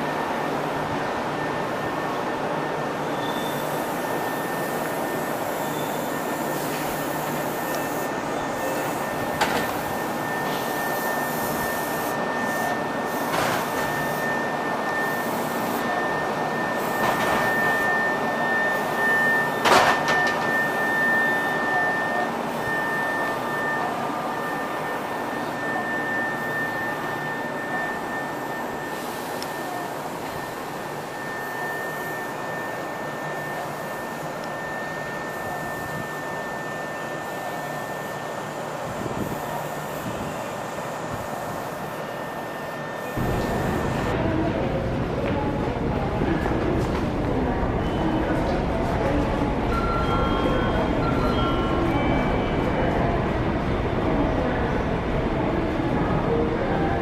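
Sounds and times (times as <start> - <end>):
thin high tone: 0.0 - 38.8, 49.7 - 53.7
train equipment whirring hum: 0.0 - 57.0.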